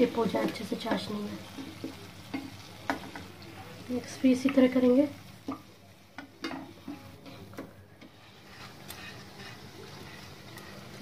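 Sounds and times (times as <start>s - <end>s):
frying in hot oil: 0.0s - 11.0s
spatula clicking against pans: 4.4s - 4.8s.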